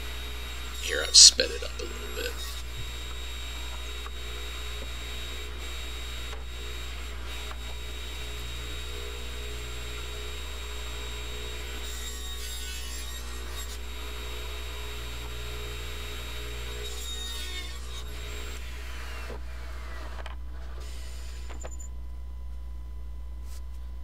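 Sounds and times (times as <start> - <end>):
saw blade cutting boards: 0.0 - 8.7, 9.3 - 21.8
table saw motor humming: 0.0 - 21.8.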